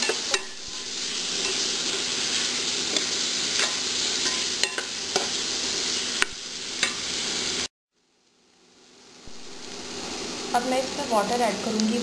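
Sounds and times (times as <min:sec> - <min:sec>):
beans sizzling in oil: 0:00.0 - 0:12.0.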